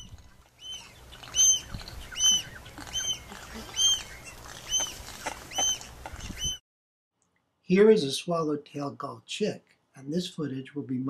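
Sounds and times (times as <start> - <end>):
gull squeaky call: 0.0 - 6.6.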